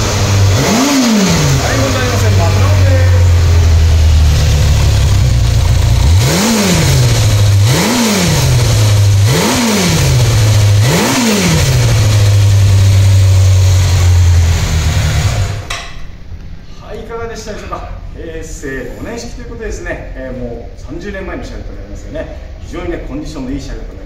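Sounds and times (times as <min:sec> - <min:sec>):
motorcycle engine idling and revving: 0:00.0 - 0:15.8.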